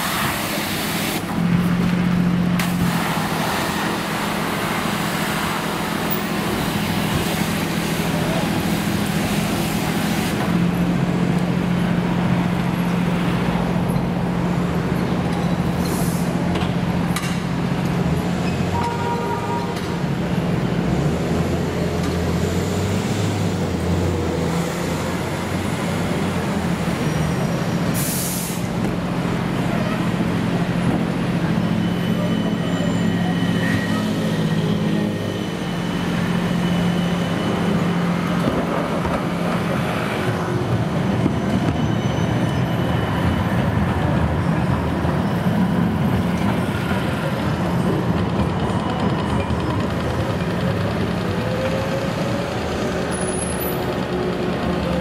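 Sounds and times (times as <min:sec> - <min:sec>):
tram motors and wheels humming: 0:00.0 - 0:55.0.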